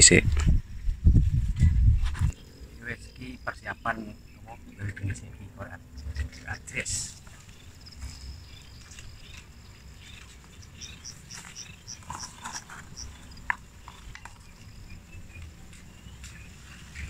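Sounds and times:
dry twigs and leaves rustling: 6.0s - 17.0s.

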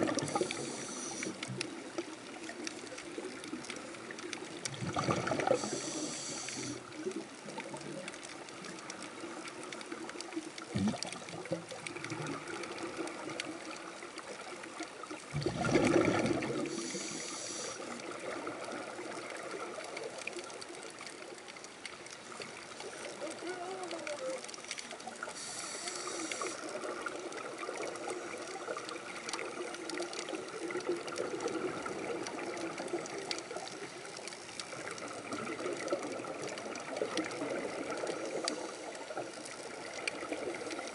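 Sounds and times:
diver breathing through regulator: 0.0s - 1.5s, 5.3s - 6.9s, 16.5s - 18.0s, 25.3s - 26.8s
regulator hiss: 0.0s - 1.7s, 5.4s - 6.9s, 16.6s - 18.0s, 25.0s - 27.0s
burbling exhaled bubbles: 0.0s - 9.4s, 10.6s - 13.8s, 15.1s - 17.2s, 26.0s - 40.9s
underwater wash: 0.0s - 40.9s.

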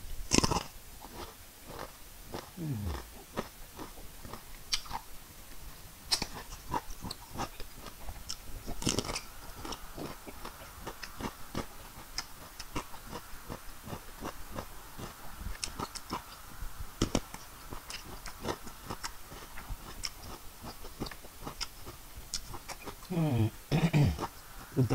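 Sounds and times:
crunchy chewing of cucumber: 0.0s - 23.1s
wet mouth sounds: 0.3s - 5.0s.

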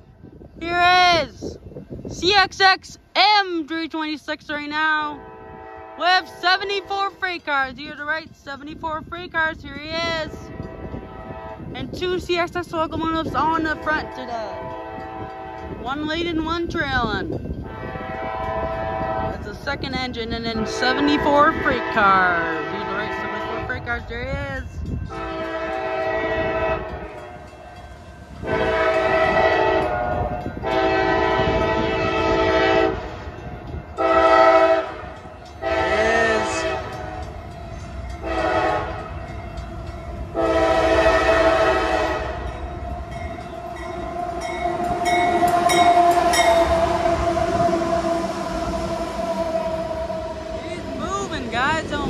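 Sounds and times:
diesel locomotives rolling past: 0.0s - 52.0s
locomotive air horn blasts: 5.1s - 7.3s, 10.1s - 12.0s, 13.4s - 16.6s, 17.6s - 19.6s, 20.4s - 24.4s, 25.1s - 27.6s, 28.4s - 37.5s, 38.1s - 39.4s, 40.3s - 52.0s.

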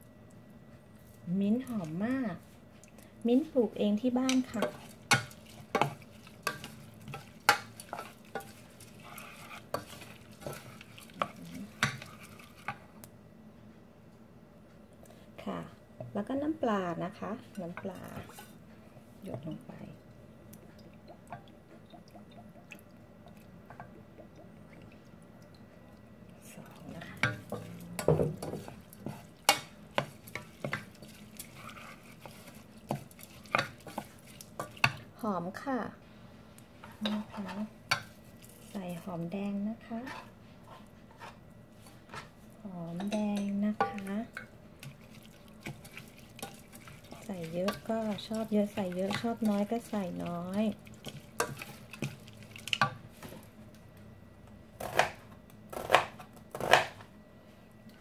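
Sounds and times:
soft scraping rustle of food: 7.8s - 12.7s, 30.1s - 34.8s, 39.8s - 42.9s
wet meat squelching: 43.9s - 52.8s.

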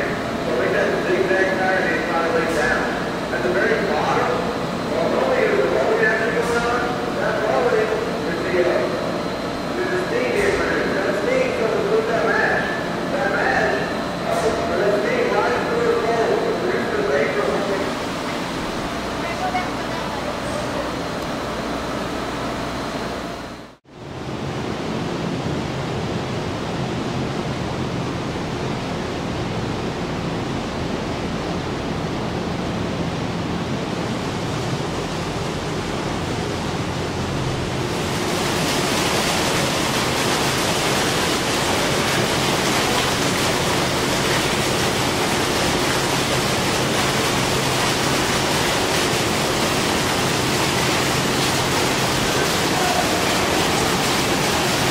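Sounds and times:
low machinery hum: 0.0s - 54.9s
liquid pouring and splashing: 37.8s - 54.9s.

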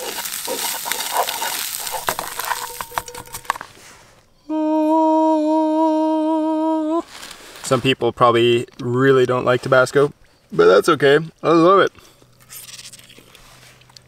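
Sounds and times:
eggs sizzling in a skillet: 0.0s - 3.8s
utensil scraping skillet: 0.0s - 4.2s
person humming: 2.2s - 3.7s, 4.4s - 7.1s.

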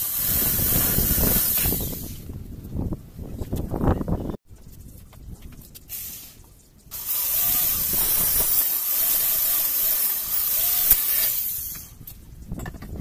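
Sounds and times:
electric drill boring into metal: 0.0s - 2.0s, 6.9s - 11.9s.

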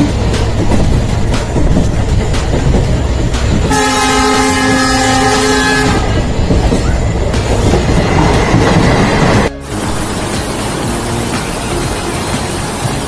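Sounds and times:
train rumbling: 0.0s - 13.0s
train horn blast: 3.7s - 6.2s.

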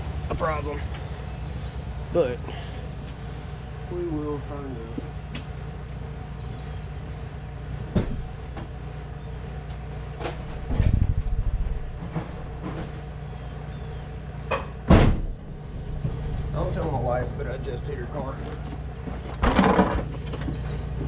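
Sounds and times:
low hum: 0.0s - 21.0s
knocks and rattle of handling: 7.8s - 9.0s, 17.5s - 21.0s
loud bang on car body: 14.9s - 15.4s.

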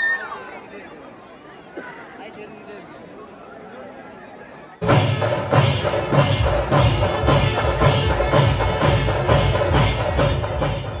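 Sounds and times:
rhythmic percussion music: 4.8s - 11.0s.

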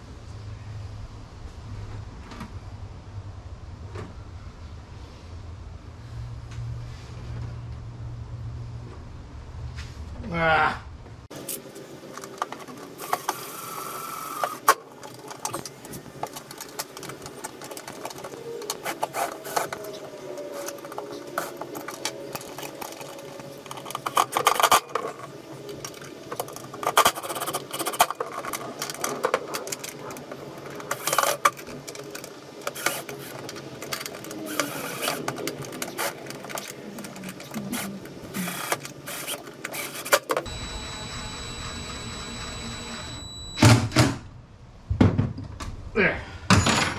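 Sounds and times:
cordless drill whine: 40.5s - 43.7s.

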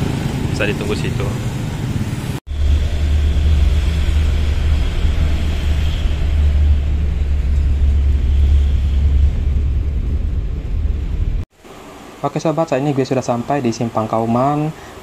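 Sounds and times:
vehicle engine and road rumble: 0.0s - 11.5s
noisy cabin hiss: 2.5s - 15.0s.

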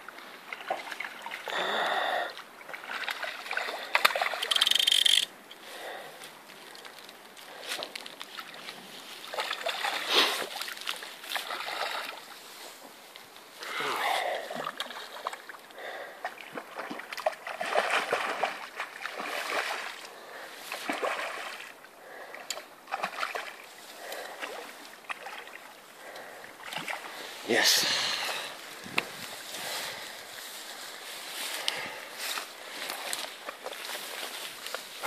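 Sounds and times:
fish thrashing and splashing: 2.7s - 5.3s, 8.0s - 12.3s, 16.2s - 20.0s.

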